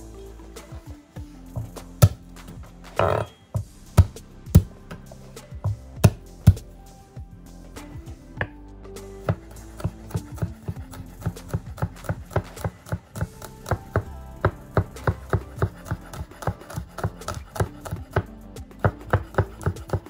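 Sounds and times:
knife chopping on cutting board: 0:01.6 - 0:02.2, 0:03.0 - 0:03.3, 0:04.0 - 0:04.7, 0:09.3 - 0:20.0.

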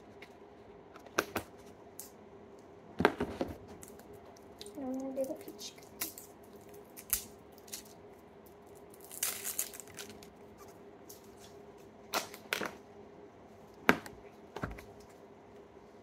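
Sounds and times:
plastic wrapping crinkling: 0:03.8 - 0:12.8.

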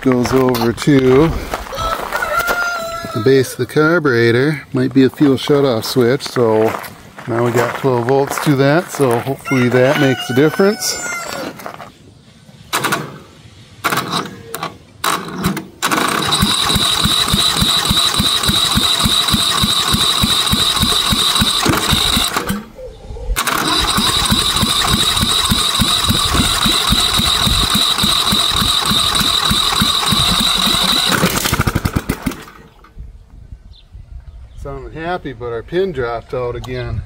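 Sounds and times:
engine cranking: 0:13.9 - 0:22.7, 0:23.4 - 0:32.9
starter motor whine: 0:15.1 - 0:22.7, 0:23.4 - 0:32.8.

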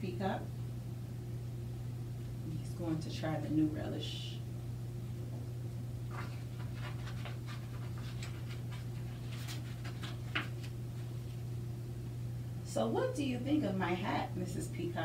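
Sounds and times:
steady low hum: 0:00.0 - 0:15.0
paper page rustling: 0:06.1 - 0:11.4.

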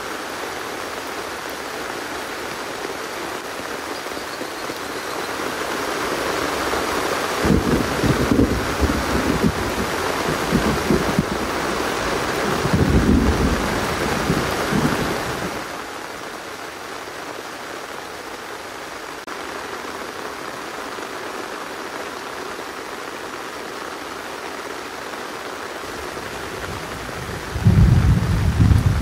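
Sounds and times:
steady rain falling: 0:00.0 - 0:29.0
low rumble: 0:27.2 - 0:29.0.

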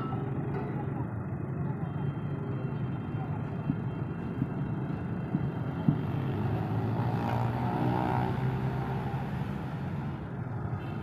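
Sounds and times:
tractor diesel engine: 0:00.0 - 0:07.1.

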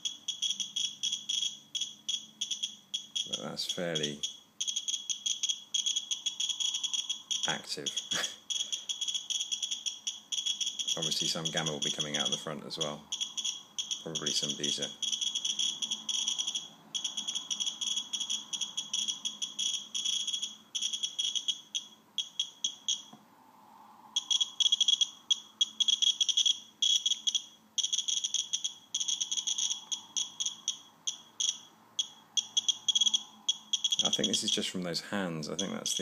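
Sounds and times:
geiger counter beeping rapidly: 0:00.0 - 0:23.1, 0:24.2 - 0:34.8, 0:35.6 - 0:36.0.

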